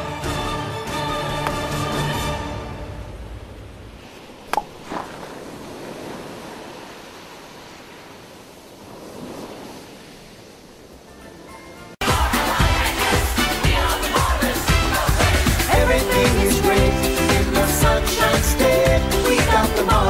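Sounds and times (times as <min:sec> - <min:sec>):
surf washing on beach: 0:03.5 - 0:11.2.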